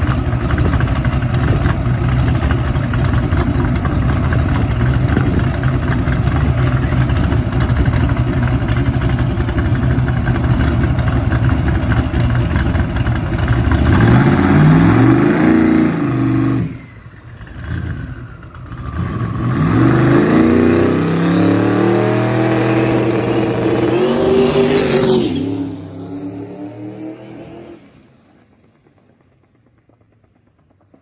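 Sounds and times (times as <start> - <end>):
turbo engine revving hard: 13.7 - 16.8, 18.9 - 27.8.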